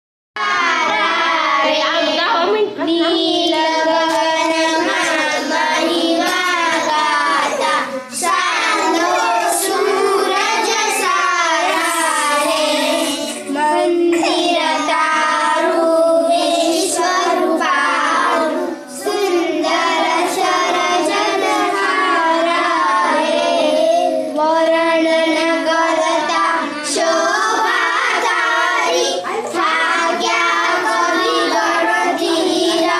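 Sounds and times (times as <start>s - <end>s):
children singing a prayer: 0.4s - 32.9s.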